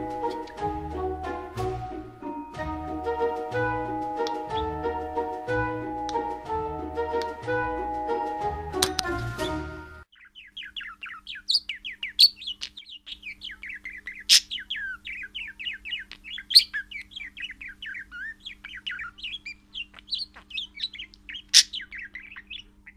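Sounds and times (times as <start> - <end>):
sharp bird calls: 3.2 - 6.4, 9.0 - 22.9
budgerigar warbling chirps: 9.4 - 22.9.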